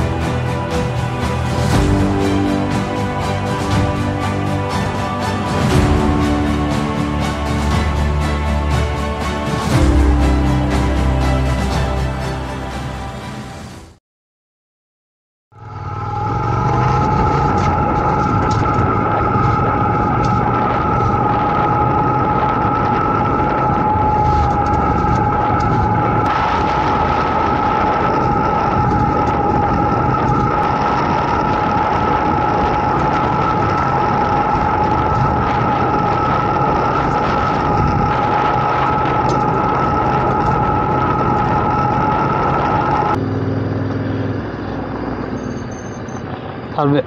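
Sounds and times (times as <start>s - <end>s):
wind noise: 15.6s - 47.0s
motorcycle engine running: 23.8s - 46.7s.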